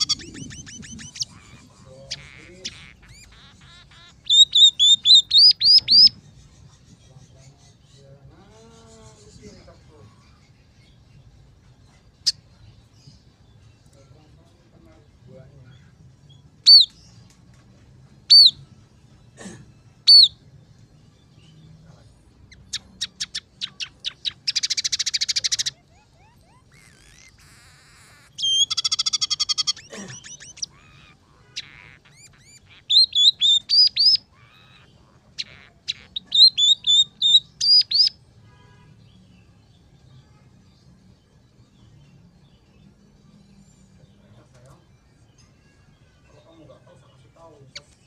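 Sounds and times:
bird singing calls and buzzy trills: 0.0s - 8.2s, 22.4s - 38.8s.

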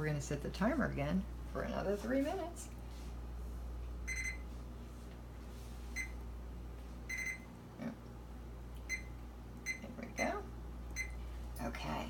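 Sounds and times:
microwave keypad beeps: 4.1s - 4.4s, 6.0s - 6.2s, 7.1s - 7.5s, 8.9s - 9.8s, 11.0s - 11.2s.

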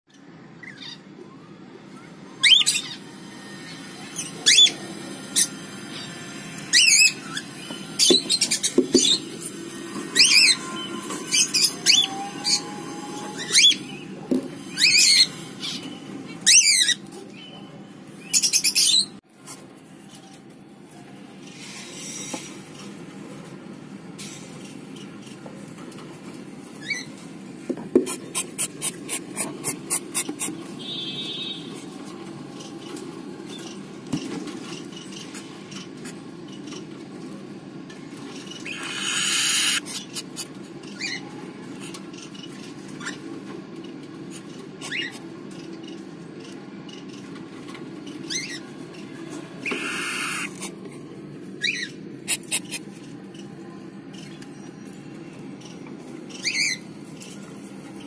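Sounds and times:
chicks high-pitched calls: 28.1s - 31.9s, 38.6s - 42.0s, 49.6s - 50.8s.

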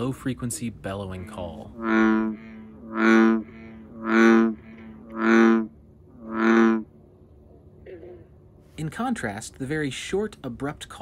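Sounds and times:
bullfrog bellowing call: 1.1s - 7.0s.

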